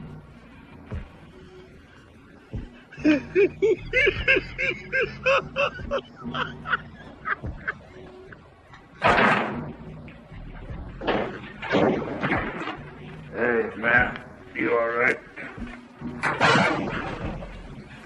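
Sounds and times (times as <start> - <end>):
person laughing in high bursts: 2.9 - 8.4
loud bang: 9.0 - 9.8.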